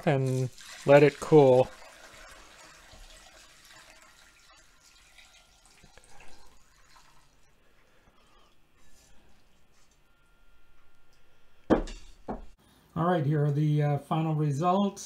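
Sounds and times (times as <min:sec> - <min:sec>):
liquid trickling into a strainer: 0:00.0 - 0:08.6.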